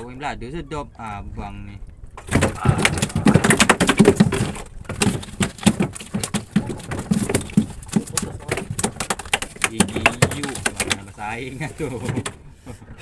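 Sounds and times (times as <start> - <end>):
dull thuds: 2.2 - 11.2
rapid clicking and knocking: 2.2 - 12.4.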